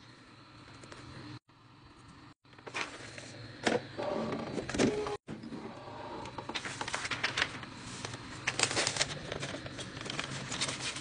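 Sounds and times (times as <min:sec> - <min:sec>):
paper crinkling and rustling: 0:02.6 - 0:03.3, 0:06.3 - 0:11.0.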